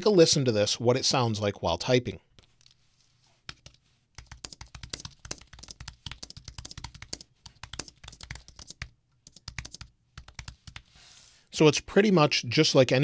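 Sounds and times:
fast keyboard typing clicks: 3.5 - 10.9.

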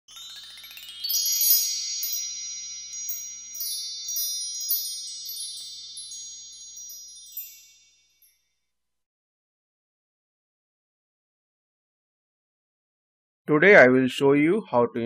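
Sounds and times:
bright high chime notes: 0.0 - 8.6
upward sweeping high tones: 0.1 - 8.0.

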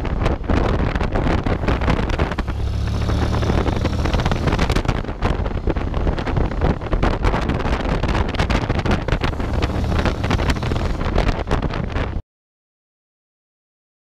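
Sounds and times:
wind buffeting microphone: 0.0 - 12.2
scooter engine running: 1.5 - 7.3, 7.9 - 11.6.

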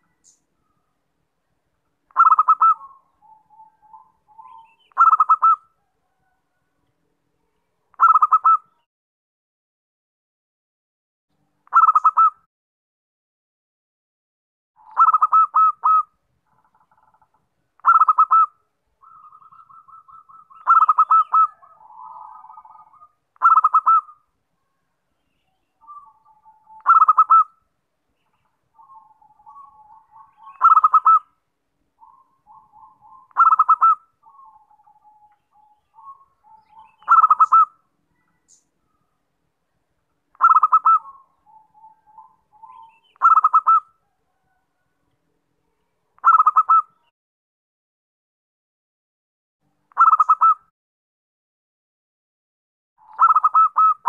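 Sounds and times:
dove cooing: 2.1 - 6.4, 8.0 - 8.8, 11.7 - 12.3, 14.8 - 16.1, 17.8 - 24.2, 25.8 - 27.5, 28.8 - 31.3, 32.0 - 38.4, 40.4 - 44.6, 46.2 - 47.0, 50.0 - 50.6, 53.0 - 54.0.

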